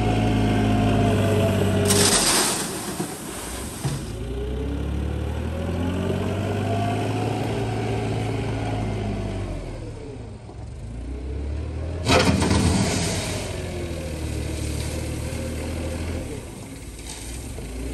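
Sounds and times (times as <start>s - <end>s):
wheel loader engine running: 0.0s - 17.9s
bucket crunching into gravel: 1.9s - 4.2s, 12.1s - 15.5s.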